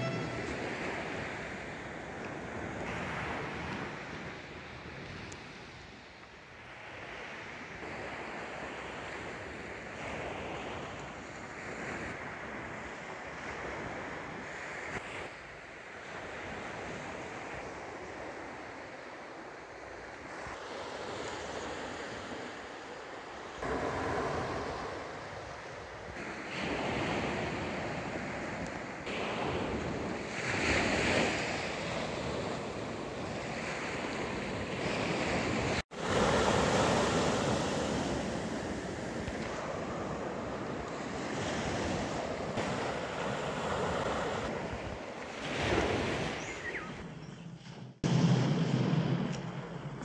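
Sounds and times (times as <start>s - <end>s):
small waves breaking on beach: 0.0s - 46.8s
wind on microphone: 23.6s - 50.0s.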